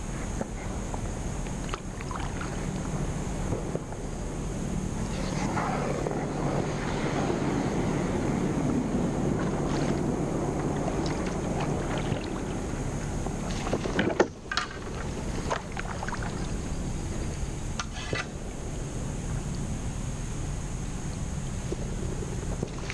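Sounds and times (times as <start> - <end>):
paddle splashes and drips: 1.4 - 3.0, 9.4 - 16.8
water rushing past kayak: 4.6 - 17.4.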